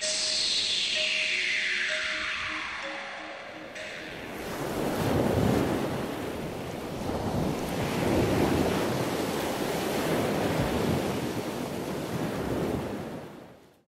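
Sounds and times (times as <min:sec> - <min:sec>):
wind: 0:00.0 - 0:13.8
surf rushing: 0:03.6 - 0:13.2.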